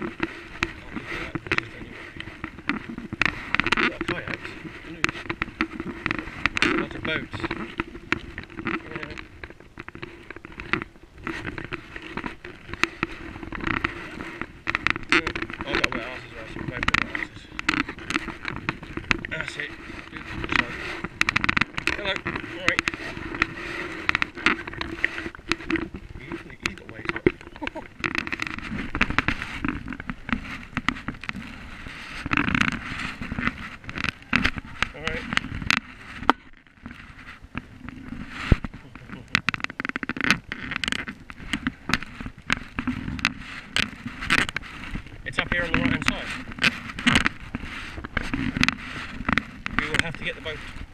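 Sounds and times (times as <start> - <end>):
paddle splashing water: 0.0 - 50.9
small clicks and knocks: 0.0 - 50.9
paddle splashing in water: 17.6 - 38.8.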